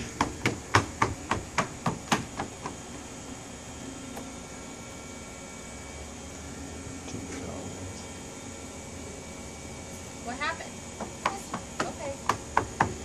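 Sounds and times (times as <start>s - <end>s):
child's footsteps on wooden deck: 0.0s - 3.0s, 11.0s - 13.0s.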